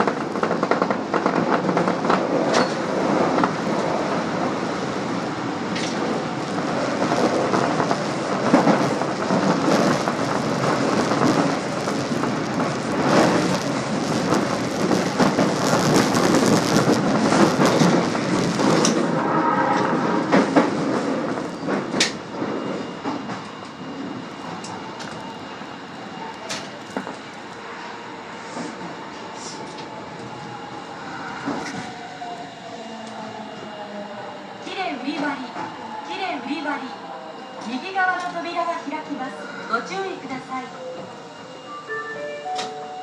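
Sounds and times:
rail clicks: 0:00.0 - 0:04.6, 0:05.6 - 0:23.8, 0:26.3 - 0:27.9, 0:37.6 - 0:39.1, 0:41.9 - 0:43.0
train wheels rumbling on rail: 0:00.0 - 0:41.4.

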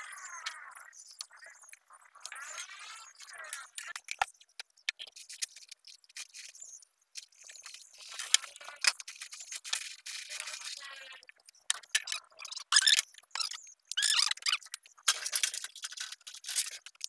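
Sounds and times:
scratching and rattling: 0:11.5 - 0:17.0.

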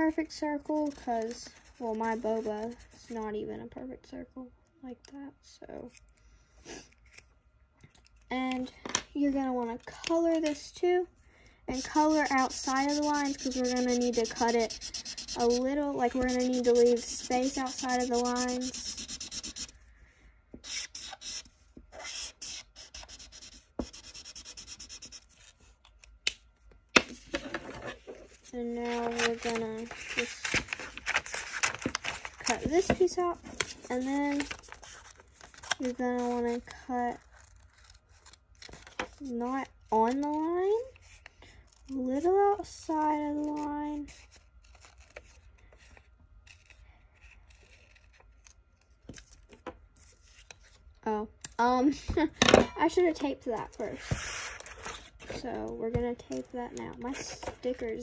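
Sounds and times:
marker scribbling on paper: 0:11.7 - 0:19.7, 0:20.6 - 0:21.4, 0:22.0 - 0:25.2.

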